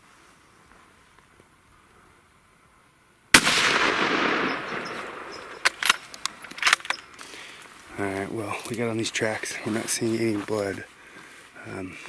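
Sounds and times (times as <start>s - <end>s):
rifle shot echoing: 3.3s - 6.2s
sharp clicks: 4.5s - 7.3s.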